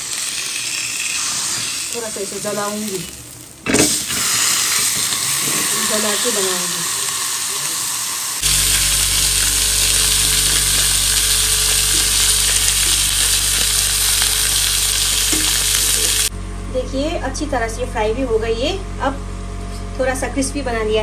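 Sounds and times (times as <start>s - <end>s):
pork sizzling on a griddle: 0.0s - 16.3s
steady low hum: 8.4s - 21.0s.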